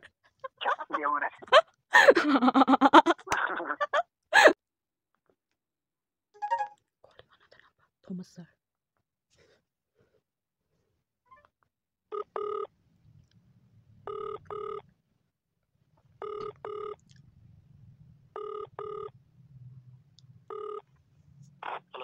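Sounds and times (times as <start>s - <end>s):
telephone ringback tone: 6.4s - 6.7s, 12.1s - 12.7s, 14.1s - 14.8s, 16.2s - 17.0s, 18.4s - 19.2s, 20.5s - 20.9s.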